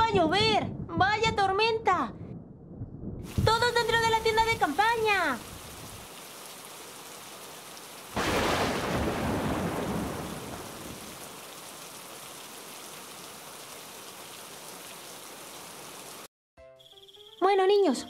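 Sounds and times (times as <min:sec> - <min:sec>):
thunderclap rumbling: 0:00.0 - 0:06.1, 0:08.2 - 0:11.6
steady rain: 0:03.3 - 0:16.3.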